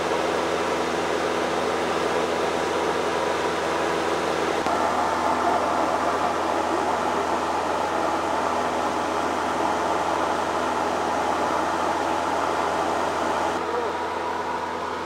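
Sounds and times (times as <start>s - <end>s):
light aircraft engine and propeller: 0.0s - 15.0s.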